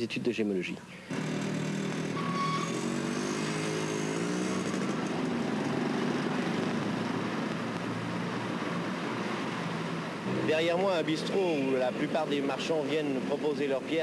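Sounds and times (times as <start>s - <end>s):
motorcycle engines passing: 1.1s - 14.0s
short high beep: 2.2s - 2.8s.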